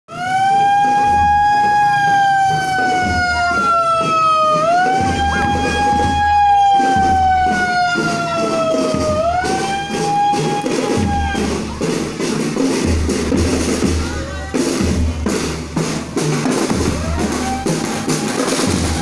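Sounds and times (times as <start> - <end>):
siren wailing: 0.1 - 11.6.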